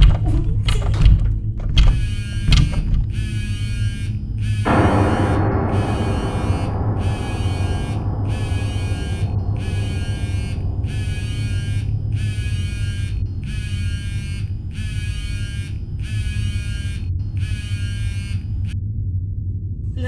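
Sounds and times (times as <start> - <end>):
steady low drone: 0.7 - 20.0
phone ringing buzz: 2.0 - 4.6.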